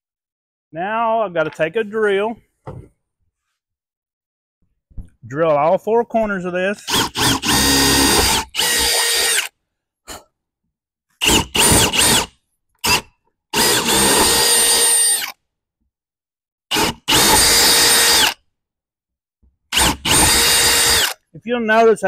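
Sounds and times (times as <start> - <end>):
cordless drill whine: 6.8 - 9.5, 11.2 - 13.0, 13.6 - 15.4, 16.7 - 18.4, 19.7 - 21.2.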